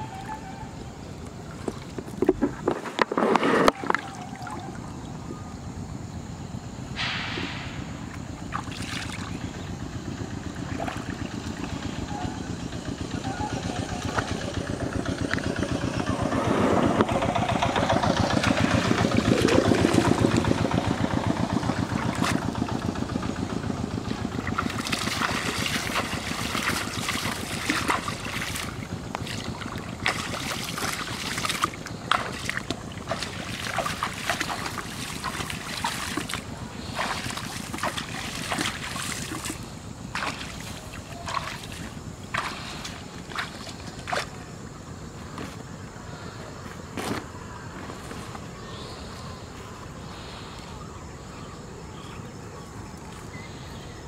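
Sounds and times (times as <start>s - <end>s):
water splashing and sloshing: 1.2s - 5.3s, 7.0s - 45.7s
small engine running: 7.5s - 47.1s.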